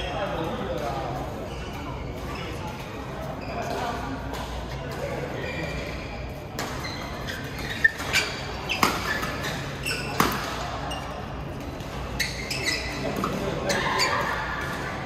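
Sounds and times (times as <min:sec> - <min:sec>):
shoe squeaks on court floor: 0:01.4 - 0:02.7, 0:03.3 - 0:04.0, 0:05.4 - 0:14.5
rackets striking shuttlecock: 0:07.4 - 0:10.8.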